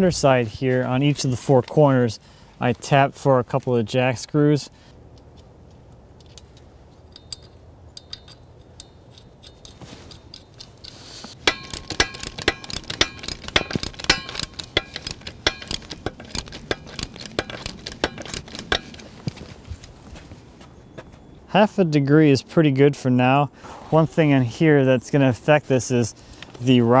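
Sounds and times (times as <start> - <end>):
sharp metallic clicks: 5.1 - 19.4.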